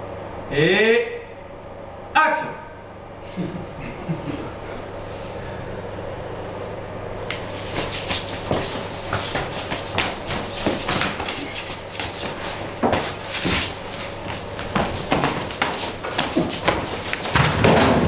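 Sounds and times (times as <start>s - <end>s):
steady low hum: 0.0s - 18.0s
scuffling feet: 7.2s - 18.0s
body contact knocks and thuds: 7.8s - 18.0s.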